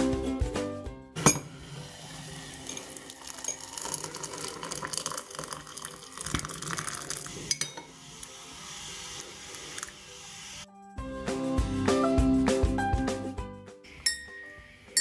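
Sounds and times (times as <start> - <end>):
water pouring into a mug: 1.8 - 10.6.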